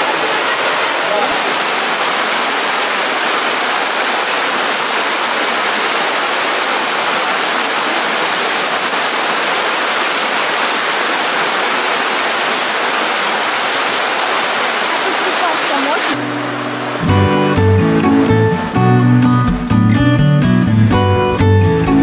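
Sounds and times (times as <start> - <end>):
water pouring off rock ledge: 0.0 - 16.2.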